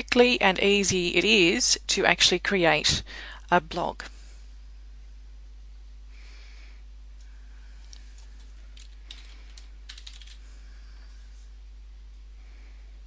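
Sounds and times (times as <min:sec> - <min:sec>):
steady low hum: 0:00.0 - 0:13.0
keyboard typing: 0:08.2 - 0:10.4.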